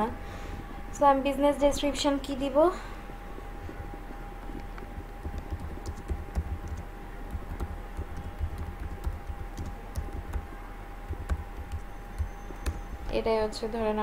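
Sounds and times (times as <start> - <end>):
faint steady hum: 0.0 - 14.0
keyboard typing: 4.6 - 13.2.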